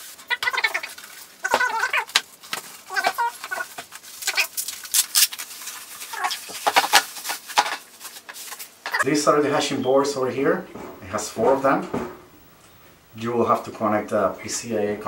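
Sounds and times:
bubble wrap crinkling: 0:00.0 - 0:09.0
squeaky rubbing of packing foam: 0:00.0 - 0:09.1.

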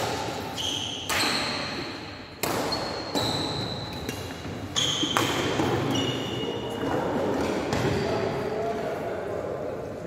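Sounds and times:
badminton rackets hitting shuttlecock: 0:00.0 - 0:05.8.

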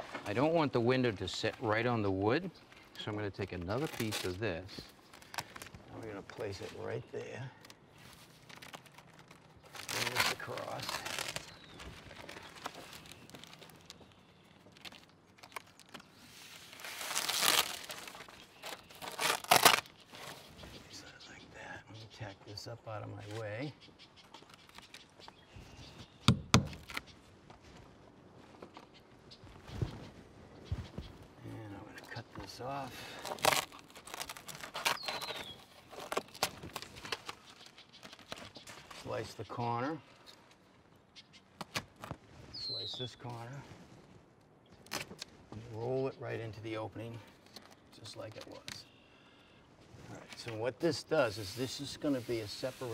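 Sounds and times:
house wrap rustling and crinkling: 0:00.0 - 0:20.9, 0:26.0 - 0:31.4, 0:32.0 - 0:40.9, 0:49.8 - 0:52.9.

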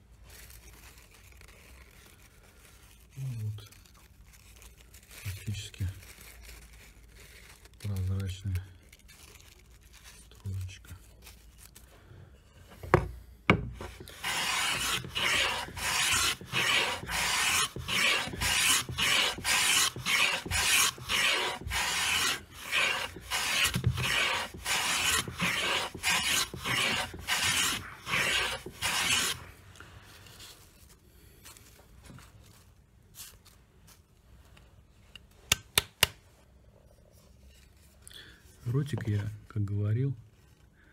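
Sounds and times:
hand plane planing wood: 0:13.5 - 0:29.4.

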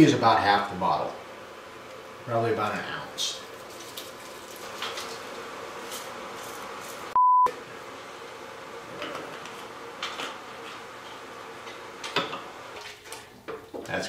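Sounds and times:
electronic censor bleep: 0:07.2 - 0:07.5.

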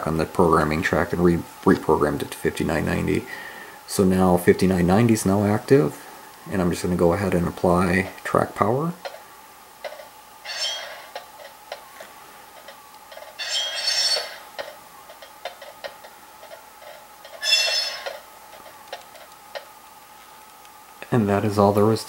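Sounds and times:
faint steady hum: 0:00.0 - 0:22.0
hiss bursts with high squeal: 0:10.5 - 0:11.1.

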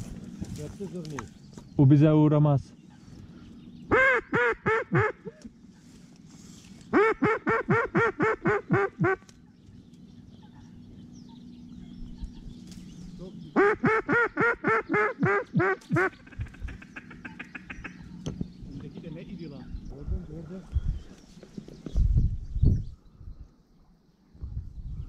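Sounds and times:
duck call quacks: 0:03.9 - 0:05.4, 0:06.9 - 0:09.2, 0:13.6 - 0:18.0.

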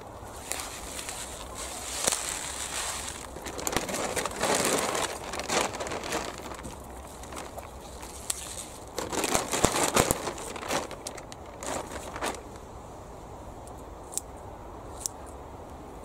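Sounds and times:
plastic sack crinkling: 0:00.3 - 0:12.6.

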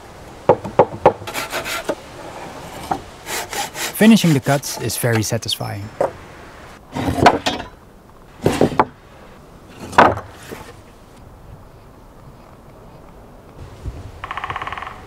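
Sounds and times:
timber knocking on workbench: 0:00.5 - 0:01.2.

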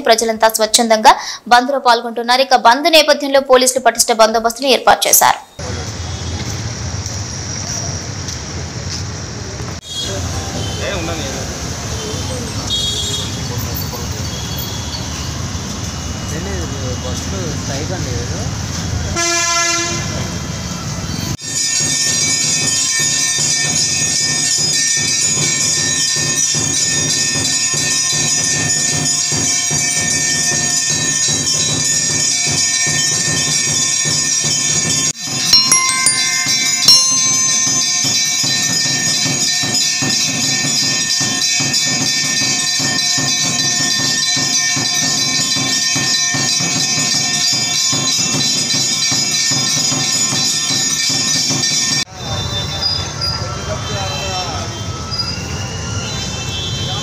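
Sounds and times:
music with bell-like tones: 0:21.4 - 0:52.1.

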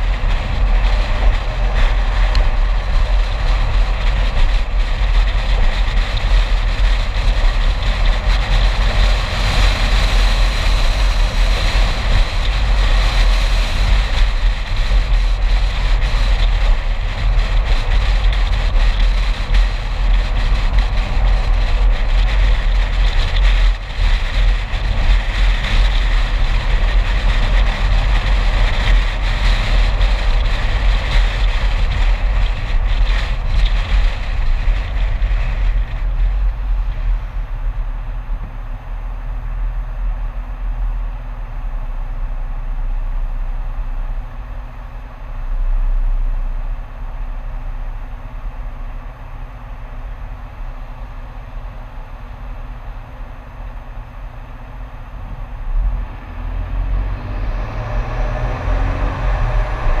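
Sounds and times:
wind and road noise: 0:00.0 - 1:00.0
car engine revving: 0:55.4 - 1:00.0.

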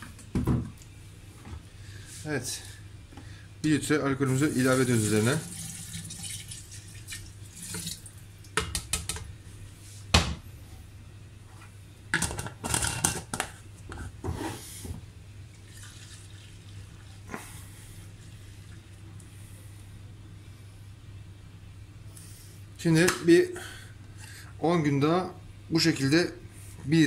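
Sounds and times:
liquid pouring into glass jar: 0:05.3 - 0:08.2.

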